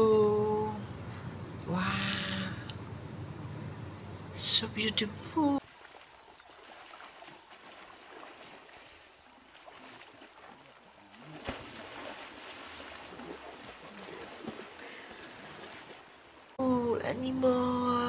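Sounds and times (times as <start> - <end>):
water sloshing and splashing: 0.0 - 16.6
sharp splash: 5.6 - 14.8.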